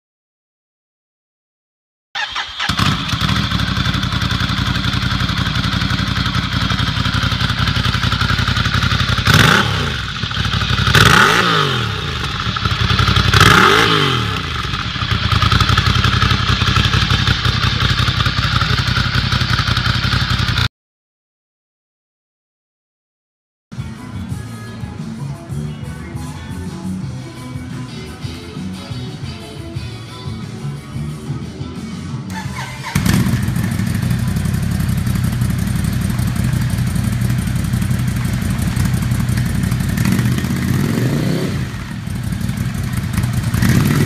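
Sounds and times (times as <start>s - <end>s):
motorcycle engine idling: 2.2s - 20.7s, 32.3s - 44.0s
motorcycle engine revving: 2.2s - 20.7s, 32.3s - 44.0s.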